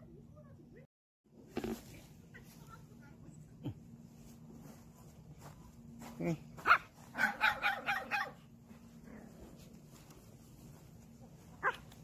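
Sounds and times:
small dog barking: 6.6s - 8.5s, 11.6s - 12.0s.

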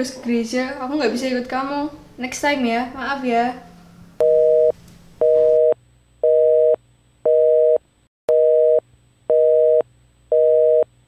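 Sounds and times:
telephone busy tone beeping: 4.2s - 10.8s.

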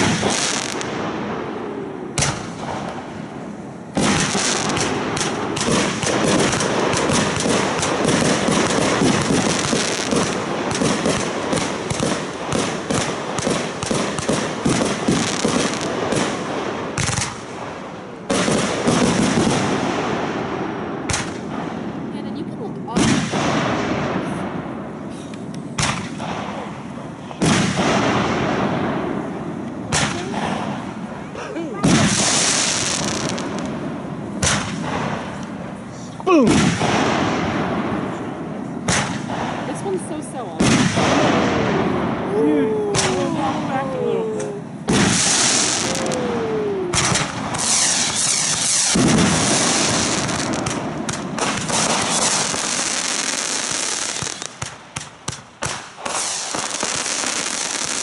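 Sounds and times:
firework bangs: 0.0s - 58.0s
firework pops: 2.2s - 3.1s, 21.1s - 21.7s, 25.1s - 26.7s, 29.6s - 30.9s, 34.4s - 35.5s, 38.8s - 39.8s, 42.9s - 43.2s, 46.9s - 58.0s.

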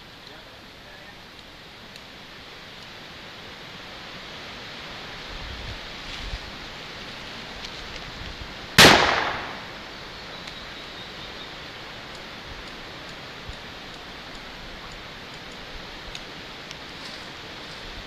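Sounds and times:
steady outdoor hiss: 0.0s - 18.0s
handgun shot with echo: 8.8s - 9.8s.

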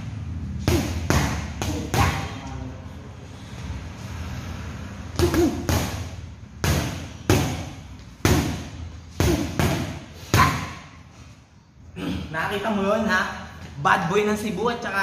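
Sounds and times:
punches thudding on punching bag: 0.6s - 2.4s, 5.2s - 10.8s.

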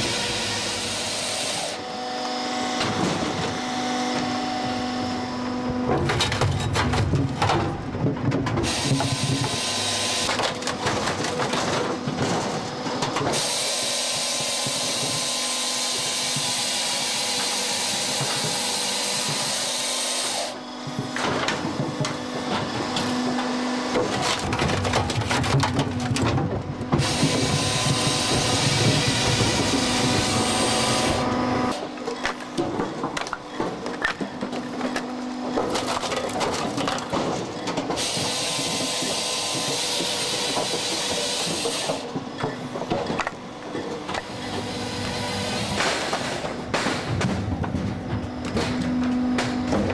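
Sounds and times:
saw cutting through log: 0.0s - 5.8s, 8.6s - 26.1s, 26.8s - 46.7s
machine hum: 0.0s - 49.9s
split wood knocking and clattering: 5.7s - 13.5s, 20.8s - 31.1s, 31.7s - 49.9s.

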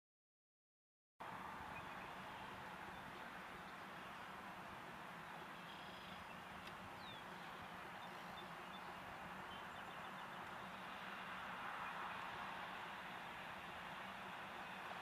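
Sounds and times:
steady background hiss: 1.2s - 15.0s
faint bird chirps and trill: 5.4s - 10.9s.

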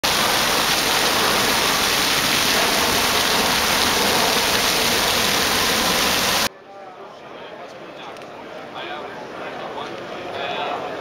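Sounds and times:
fountain water splashing: 0.0s - 6.5s.

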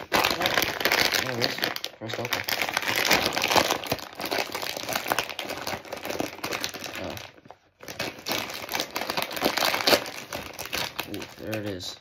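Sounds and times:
chip bag crackling and rustling: 0.0s - 12.0s.

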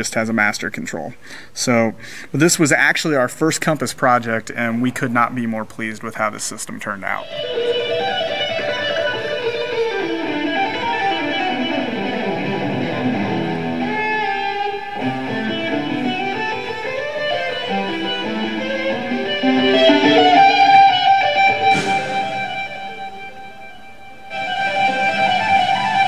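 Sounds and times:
guitar background music: 7.2s - 26.0s.

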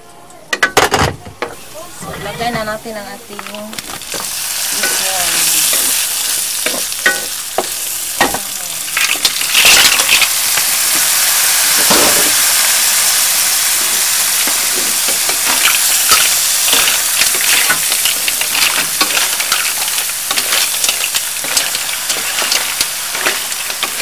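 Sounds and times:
food sizzling in a wok: 1.4s - 24.0s
wooden spatula scraping a wok: 1.5s - 7.8s, 14.4s - 24.0s.

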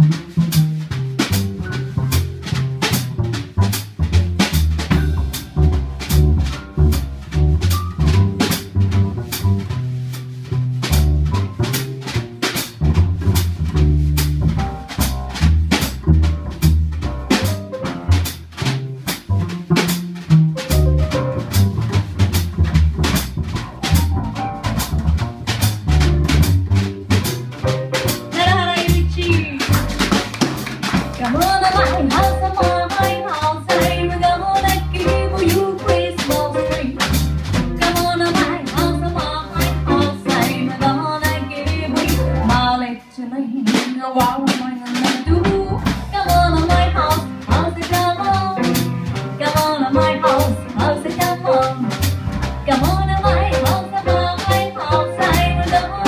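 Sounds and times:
plucked upright bass: 0.0s - 43.0s, 44.2s - 56.0s
drum kit and cymbals: 0.0s - 43.1s, 43.7s - 56.0s
piano: 0.0s - 43.2s, 44.2s - 56.0s
woman singing into a microphone: 31.2s - 37.0s, 37.9s - 48.6s, 49.4s - 51.8s, 52.7s - 56.0s.

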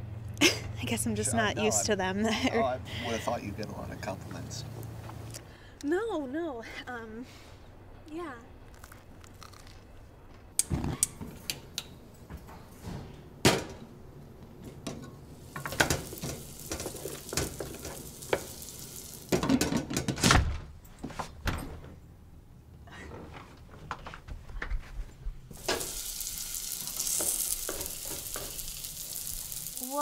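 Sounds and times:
meat sizzling in pan: 15.3s - 19.5s, 25.5s - 30.0s.

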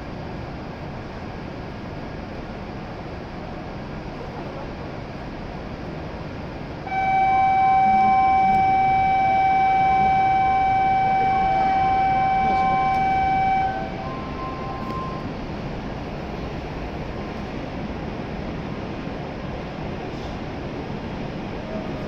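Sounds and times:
station hum: 6.8s - 17.4s
loud electronic buzzer tone: 6.9s - 15.3s
faint higher tone: 6.9s - 15.4s.

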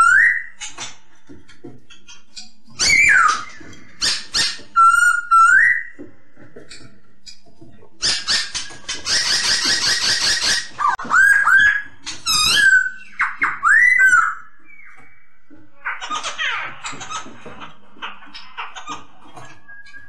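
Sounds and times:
bird whistled notes: 4.8s - 6.0s
bird harsh chatter: 8.0s - 19.7s.

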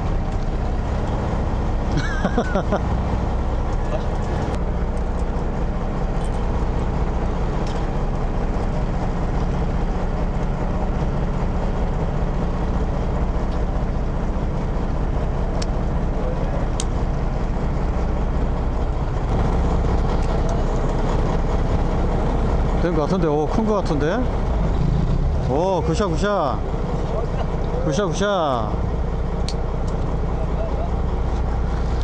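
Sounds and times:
boat engine humming: 0.0s - 32.0s.

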